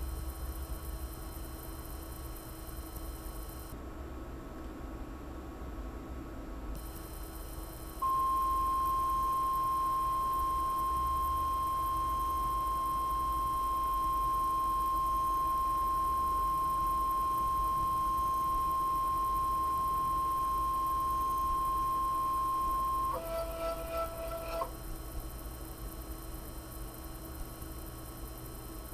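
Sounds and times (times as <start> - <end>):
stepper motor whine: 7.9 - 24.8.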